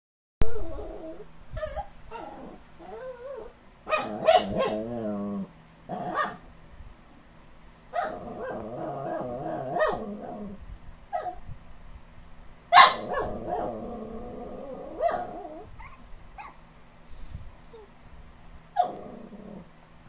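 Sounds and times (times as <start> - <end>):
dog whine-growling: 0.4 - 6.4, 8.0 - 10.6, 13.0 - 16.6, 18.8 - 19.7.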